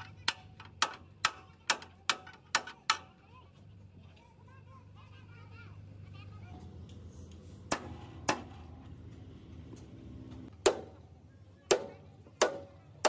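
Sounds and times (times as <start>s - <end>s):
sledgehammer striking steel: 7.7s - 8.7s.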